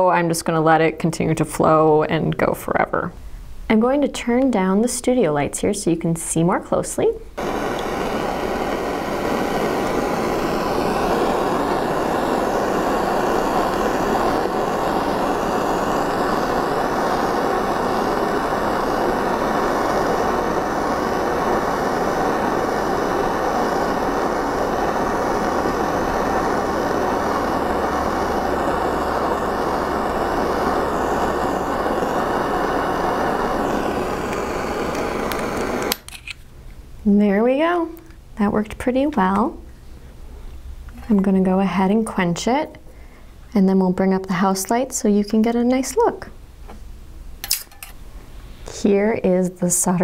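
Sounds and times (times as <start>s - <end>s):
torch flame hissing: 7.4s - 36.3s.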